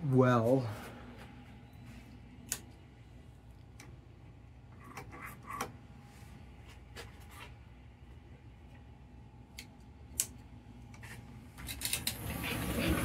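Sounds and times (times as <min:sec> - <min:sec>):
sharp electrical clicks and crackles: 0:11.6 - 0:12.2
toy locomotive humming: 0:12.0 - 0:13.0.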